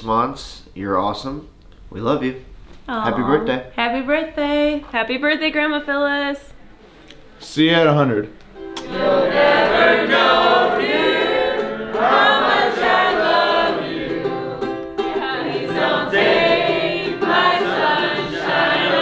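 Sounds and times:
strummed ukulele: 8.6s - 19.0s
group of people singing: 8.8s - 19.0s.

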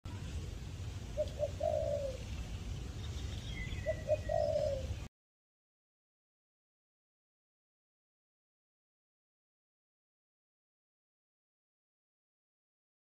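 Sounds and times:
dove cooing: 1.2s - 2.3s, 3.6s - 5.1s
faint bird chirp: 1.2s - 5.1s.

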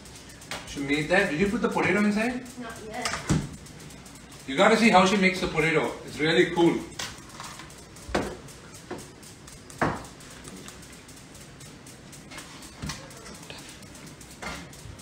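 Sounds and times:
knocks on kitchen countertop: 9.8s - 10.0s.

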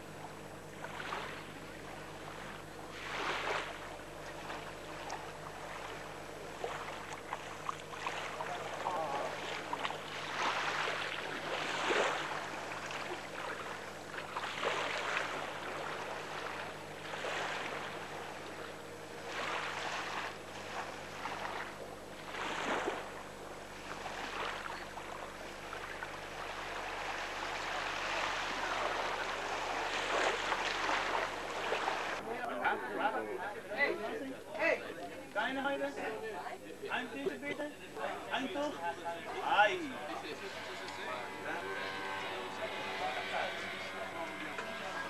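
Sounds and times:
small waves washing onto sand: 0.8s - 32.2s.

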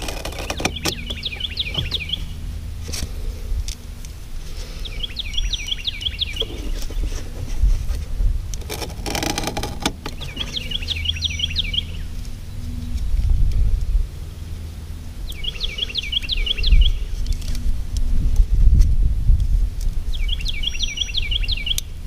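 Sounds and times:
songbird chirping: 0.0s - 2.6s, 4.6s - 7.2s, 8.6s - 13.2s, 14.3s - 17.6s, 20.1s - 22.0s
steady low rumble: 0.0s - 22.0s.

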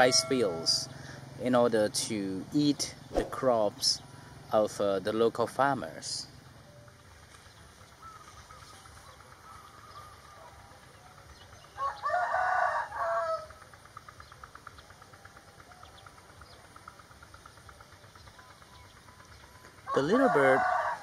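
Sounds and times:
rooster crowing: 11.8s - 13.6s, 19.8s - 21.0s.

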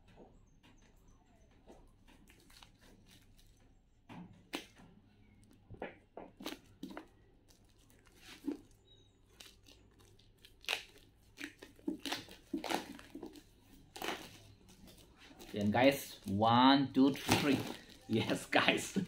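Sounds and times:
paper wrapping torn and crinkled: 6.4s - 16.4s, 17.0s - 19.0s.

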